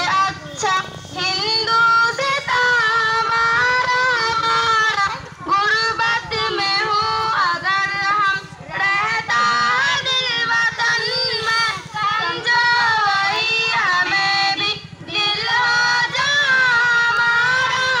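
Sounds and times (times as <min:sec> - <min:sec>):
child-like voices singing: 0:00.0 - 0:18.0.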